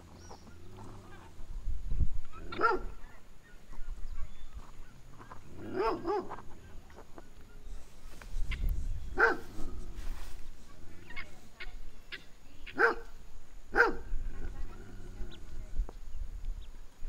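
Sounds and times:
dog barking: 2.5 - 3.0, 5.7 - 6.4, 9.2 - 9.5, 12.8 - 13.1, 13.7 - 14.1.

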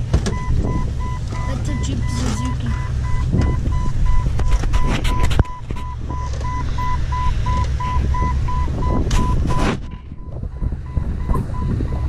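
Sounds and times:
off-road vehicle rumble and rattle: 0.0 - 12.0.

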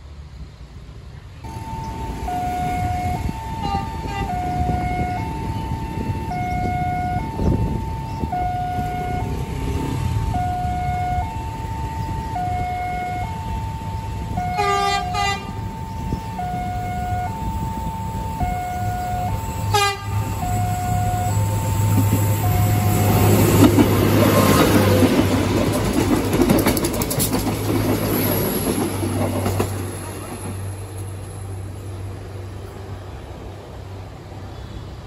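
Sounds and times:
train rumble: 0.0 - 35.0
level crossing two-tone alarm: 1.5 - 23.5
train horn: 2.2 - 5.3, 14.4 - 15.6, 16.3 - 17.6, 18.4 - 21.6, 22.4 - 23.5.

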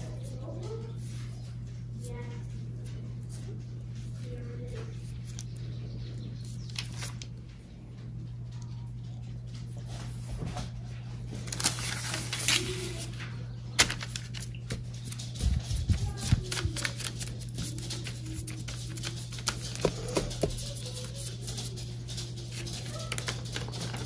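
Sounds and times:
steady low hum: 0.0 - 24.0
paper rustling and crinkling: 6.4 - 7.4, 9.6 - 24.0.

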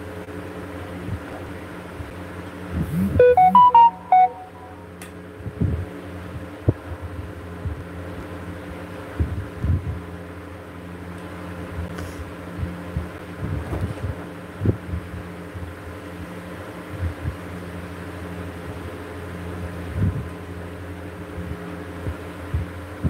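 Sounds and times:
short electronic beeps: 2.8 - 4.8.

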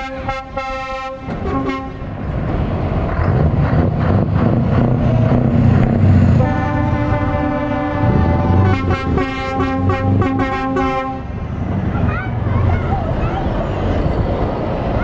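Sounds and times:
truck air horn: 0.0 - 2.1, 6.4 - 11.3
truck diesel engine under load: 1.3 - 15.0.

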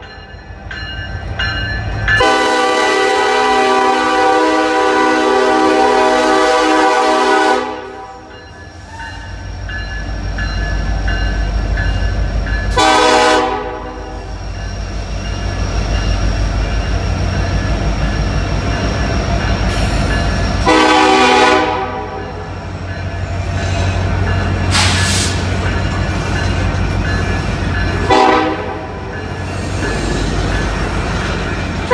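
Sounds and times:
train cars rolling: 0.0 - 31.9
train horn blasts: 2.2 - 8.3, 12.7 - 14.3, 20.6 - 22.4, 28.1 - 29.0.

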